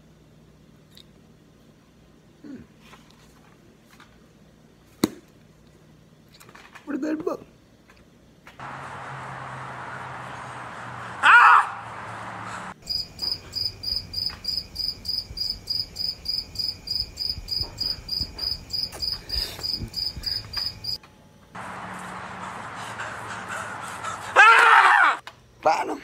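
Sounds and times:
cricket chirping: 0:12.8 - 0:21.0.

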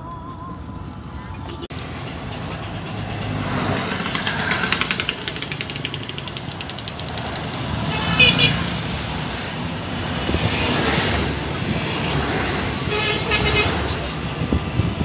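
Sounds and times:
engine and road rumble: 0:00.0 - 0:15.0
rapid clatter of engine strokes: 0:01.7 - 0:12.9.

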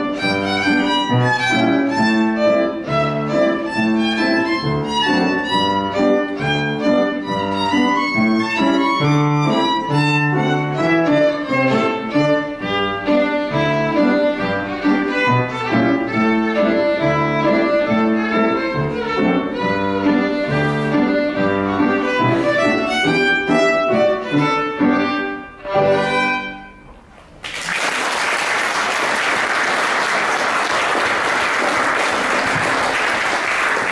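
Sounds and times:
violin and piano duet: 0:00.0 - 0:26.9
audience applause: 0:27.4 - 0:33.9.

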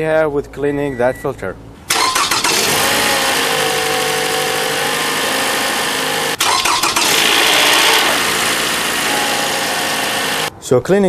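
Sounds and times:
engine cold-start rattle: 0:01.9 - 0:04.6, 0:06.4 - 0:09.2
car engine running: 0:01.9 - 0:10.5.

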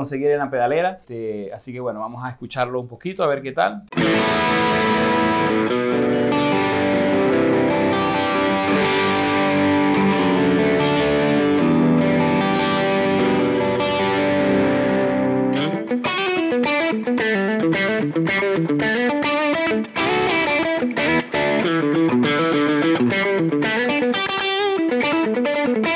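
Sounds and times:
distorted electric guitar: 0:03.9 - 0:25.9.

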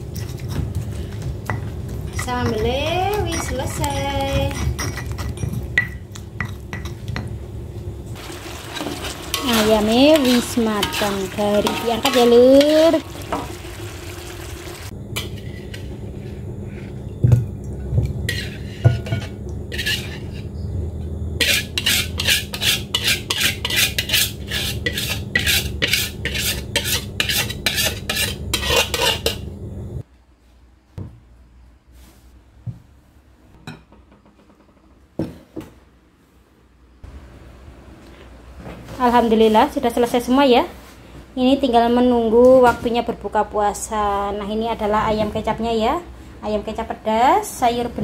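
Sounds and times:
steady low hum: 0:00.0 - 0:33.6
metal spatula scraping a wok: 0:08.4 - 0:13.9, 0:15.2 - 0:16.9, 0:18.2 - 0:20.6, 0:21.4 - 0:29.5.

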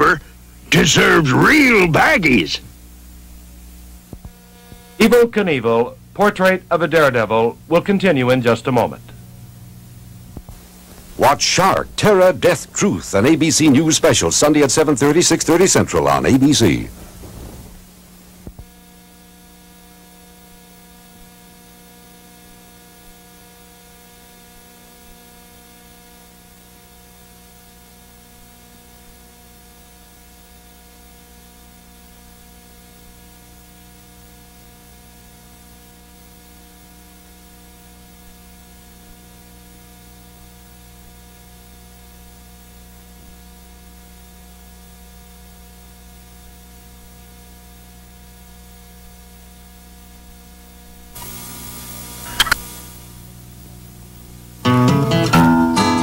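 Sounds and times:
electrical mains hum: 0:00.0 - 0:56.0
tape hiss: 0:00.0 - 0:56.0.

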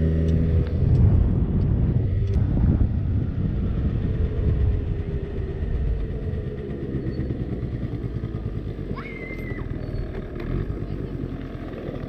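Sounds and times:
wind and road noise: 0:00.0 - 0:12.0
scooter engine running: 0:03.0 - 0:12.0.

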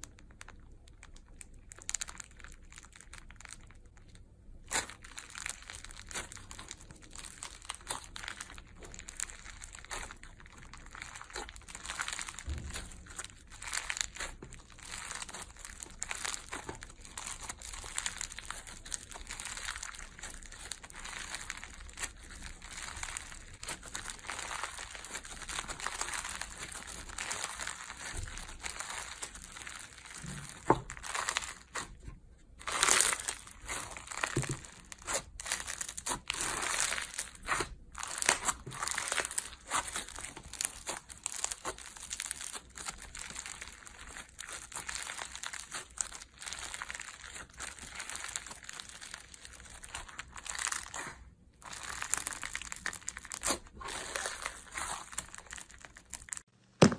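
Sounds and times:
slime beads crackling and popping: 0:00.0 - 0:56.9.

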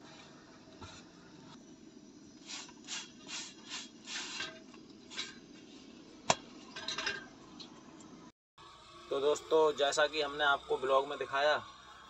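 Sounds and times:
hand scraping roti on griddle: 0:02.4 - 0:06.0.

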